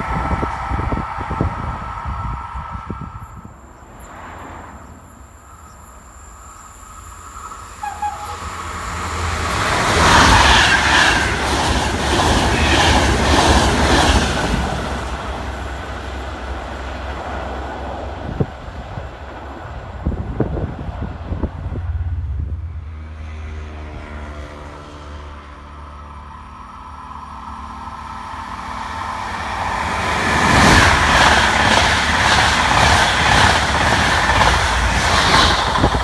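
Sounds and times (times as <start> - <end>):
passenger train passing: 0.0 - 36.0
wheels clattering on rails: 29.6 - 36.0.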